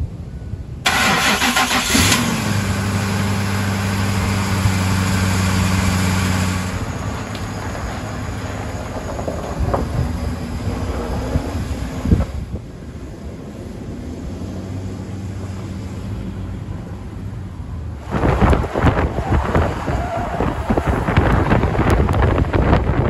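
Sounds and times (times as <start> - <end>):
pickup truck engine: 0.8 - 23.0
tyres rolling through snow: 2.2 - 17.1, 17.8 - 23.0
wind on microphone: 8.0 - 23.0.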